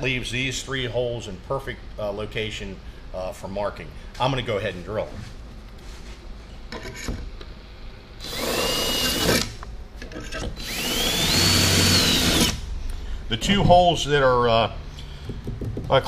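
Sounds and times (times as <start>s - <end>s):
cordless drill whining: 8.2s - 9.5s, 10.6s - 12.6s.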